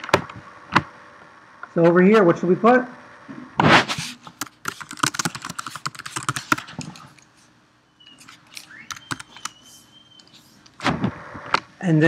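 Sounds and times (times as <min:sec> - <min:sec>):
computer keyboard typing: 0:04.3 - 0:07.2, 0:08.2 - 0:09.6.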